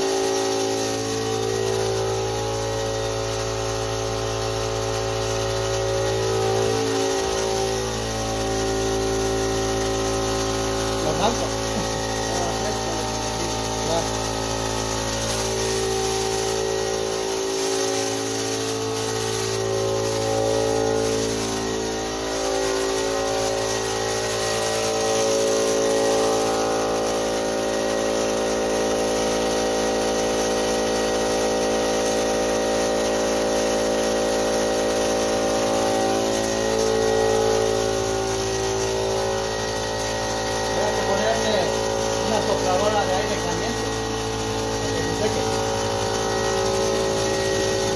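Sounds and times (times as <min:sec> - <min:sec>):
electric air compressor running: 0:00.0 - 0:47.9.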